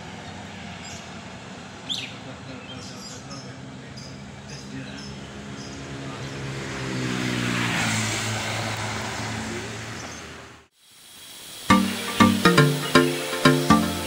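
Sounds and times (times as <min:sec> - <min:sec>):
vehicle engine passing: 0:00.0 - 0:10.6.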